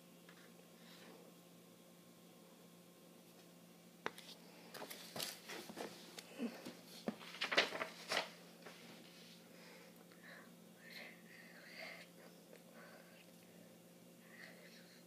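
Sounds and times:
pages and cover rustling: 0:04.1 - 0:09.1.

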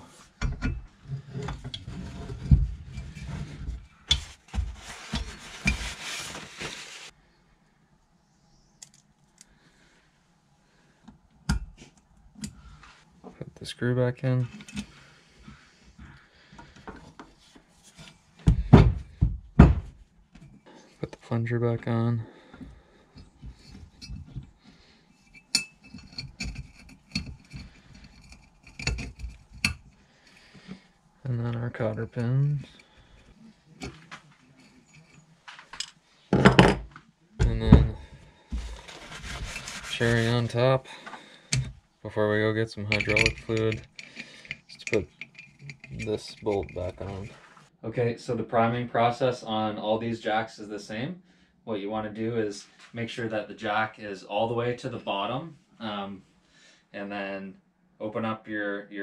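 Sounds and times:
paper towel rubbing: 0:04.2 - 0:07.1, 0:38.6 - 0:40.6
metal parts clinking: 0:42.9 - 0:47.1.

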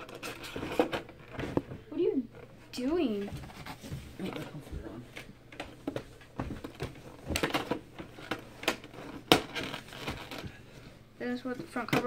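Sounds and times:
handling trading cards: 0:02.4 - 0:11.0.

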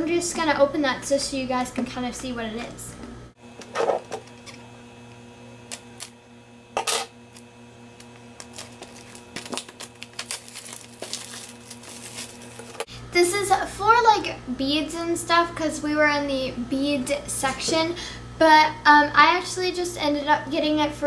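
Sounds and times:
packaging rustling: 0:08.0 - 0:12.9.

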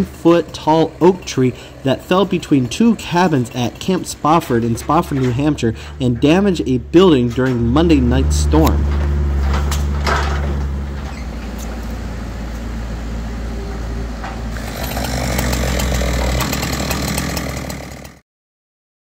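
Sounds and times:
chainsaw cutting into log: 0:00.0 - 0:05.9, 0:14.5 - 0:18.2.

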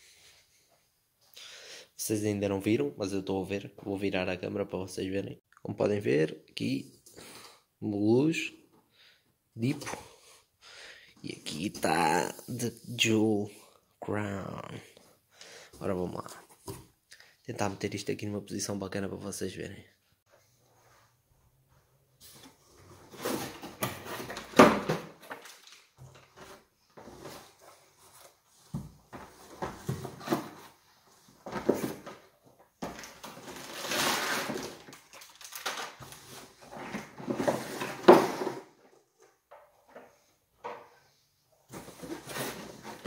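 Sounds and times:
cardboard flaps rustling and scraping: 0:22.2 - 0:34.9, 0:35.7 - 0:38.8, 0:41.7 - 0:43.0.

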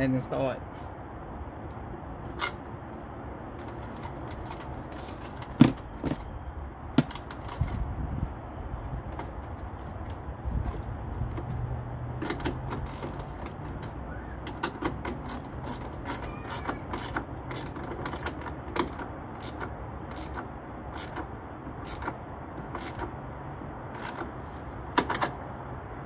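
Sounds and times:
ratchet wrench clicking: 0:12.2 - 0:23.1.

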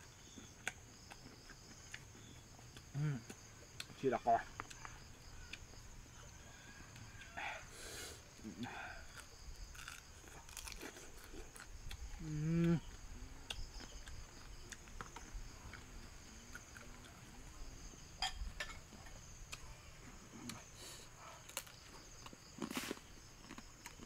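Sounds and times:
crunching and chewing: 0:00.0 - 0:07.4, 0:08.0 - 0:24.0
night insects chorus: 0:00.0 - 0:24.0
person humming: 0:12.2 - 0:12.9.

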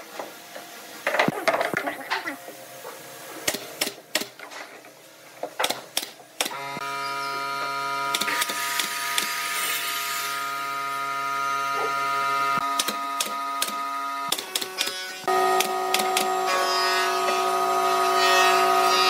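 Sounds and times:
nail gun firing: 0:03.4 - 0:04.4, 0:05.6 - 0:06.6, 0:08.1 - 0:09.4, 0:12.7 - 0:15.0.

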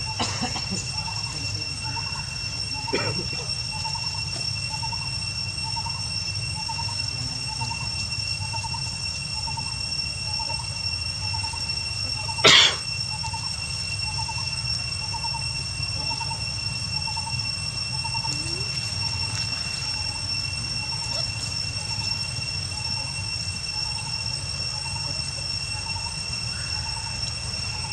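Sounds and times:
high-pitched whine: 0:00.0 - 0:27.9.

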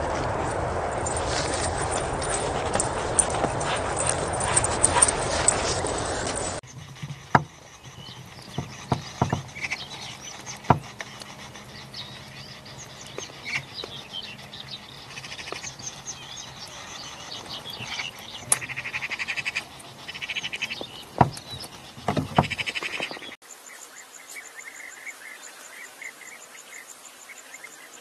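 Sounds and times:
rapid rattling call: 0:01.0 - 0:23.4.

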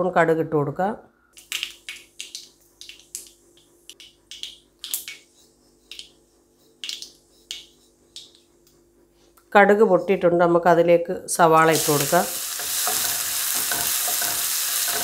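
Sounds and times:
seeds popping in hot oil: 0:11.7 - 0:15.0.

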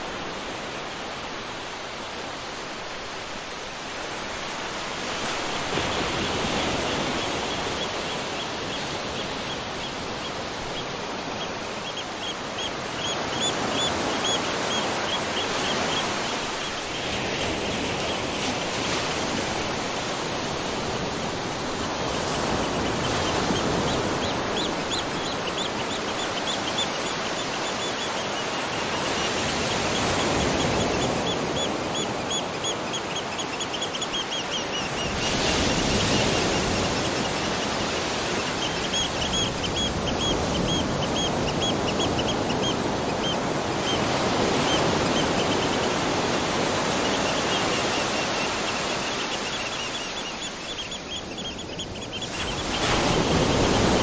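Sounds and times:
bird chirping: 0:46.8 - 0:53.9.

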